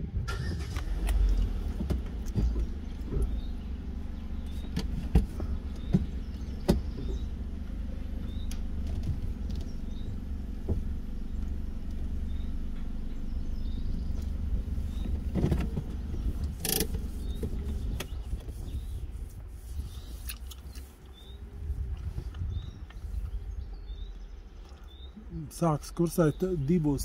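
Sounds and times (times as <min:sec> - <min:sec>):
car idling rumble and hum: 0:00.0 - 0:27.0.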